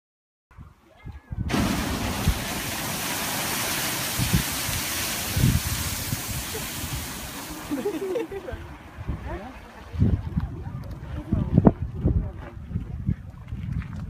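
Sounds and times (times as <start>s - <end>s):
geyser hissing water and steam: 1.5s - 8.5s.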